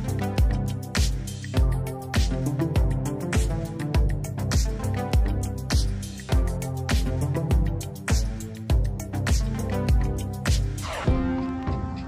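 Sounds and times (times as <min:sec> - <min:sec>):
low kick drum beat: 0:00.0 - 0:11.3.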